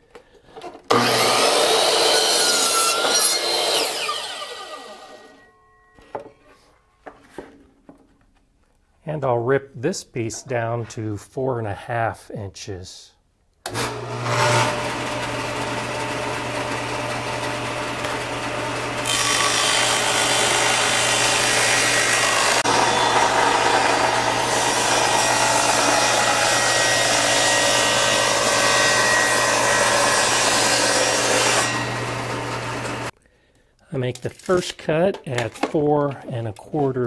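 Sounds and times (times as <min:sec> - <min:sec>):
saw blade ripping through wood: 0:00.9 - 0:05.2.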